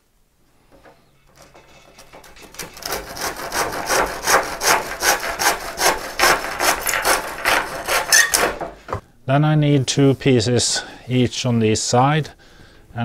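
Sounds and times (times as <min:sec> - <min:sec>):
hand saw cutting wood: 0:01.3 - 0:09.0.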